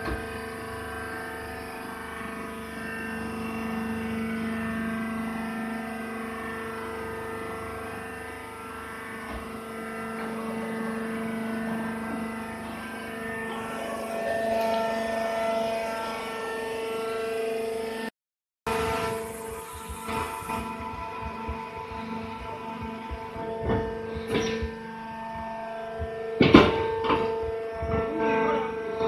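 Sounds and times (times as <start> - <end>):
baling press humming: 18.7 - 29.0.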